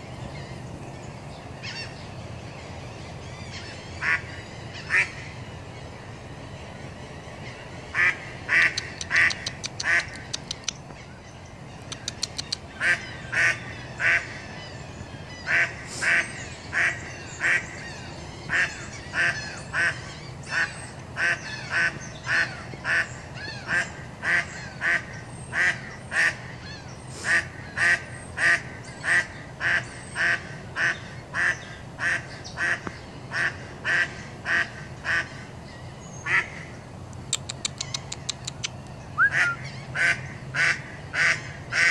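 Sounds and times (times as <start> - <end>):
duck quacking: 8.0 - 10.3, 27.2 - 35.4, 39.2 - 41.9.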